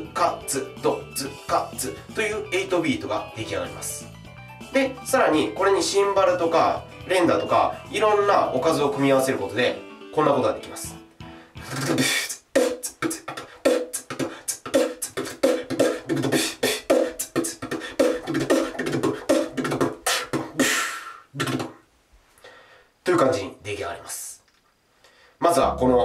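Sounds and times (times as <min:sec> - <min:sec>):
human beatbox: 0:11.6 - 0:21.8.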